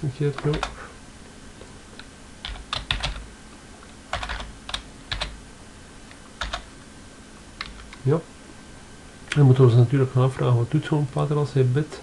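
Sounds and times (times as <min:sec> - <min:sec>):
keyboard typing: 0:00.4 - 0:00.8, 0:02.4 - 0:03.3, 0:04.1 - 0:05.4, 0:06.4 - 0:06.7.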